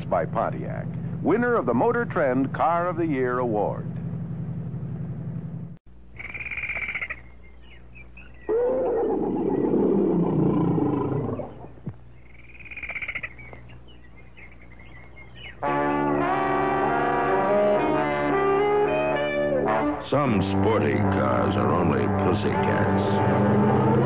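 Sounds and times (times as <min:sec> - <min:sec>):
steady low hum: 0:00.0 - 0:24.0
high-pitched animal calls: 0:06.2 - 0:15.6
tiger roaring: 0:08.5 - 0:11.8.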